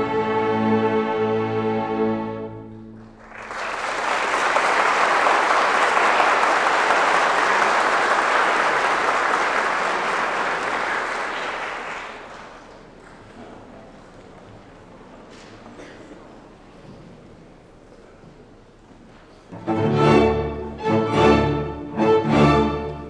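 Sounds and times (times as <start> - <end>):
audience applause: 3.0 - 14.4
string orchestra chord: 19.6 - 23.0.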